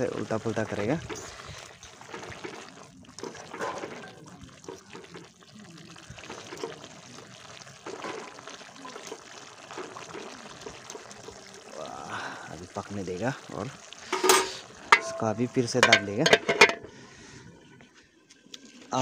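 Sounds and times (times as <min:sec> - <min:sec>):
broth boiling and sloshing: 0:00.0 - 0:19.0
fork clinking and scraping pan: 0:14.1 - 0:16.9.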